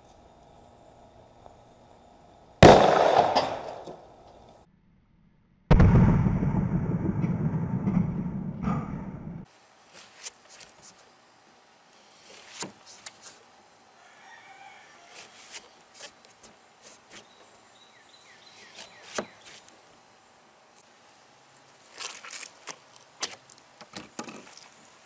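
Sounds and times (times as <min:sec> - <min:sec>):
faint bird calls: 0:17.1 - 0:19.7.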